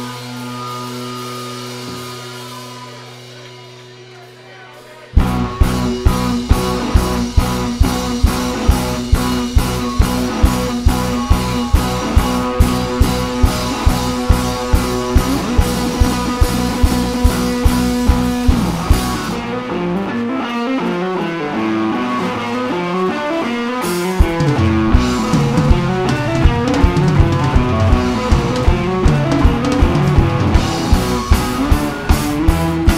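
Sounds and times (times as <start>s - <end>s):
electric guitars: 0.0s - 32.9s
steady drum beat: 5.1s - 19.6s, 23.8s - 32.9s.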